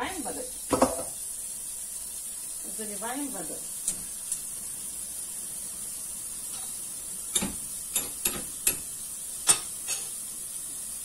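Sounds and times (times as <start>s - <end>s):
tap water filling saucepan: 0.0s - 2.8s, 3.4s - 4.8s, 6.4s - 10.8s.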